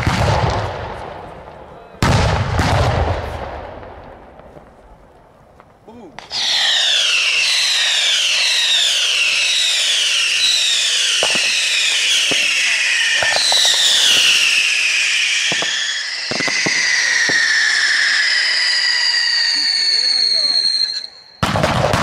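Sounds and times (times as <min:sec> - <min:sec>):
firework cracks: 0:00.0 - 0:01.3, 0:02.0 - 0:22.0
firework rockets whistling: 0:06.2 - 0:22.0.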